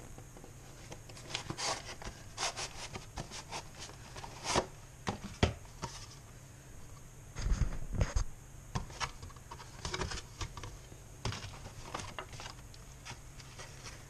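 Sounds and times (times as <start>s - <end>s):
cardboard and paper handling: 0.4s - 6.2s, 8.8s - 14.0s.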